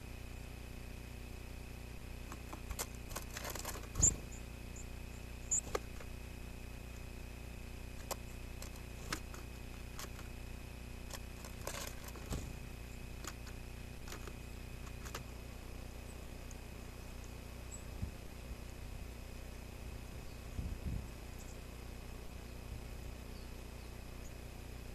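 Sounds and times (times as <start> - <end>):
camera electronic hum and hiss: 0.0 - 24.9
birds pecking on wooden tray: 2.2 - 4.2, 5.5 - 6.1, 7.9 - 10.4, 11.0 - 15.3.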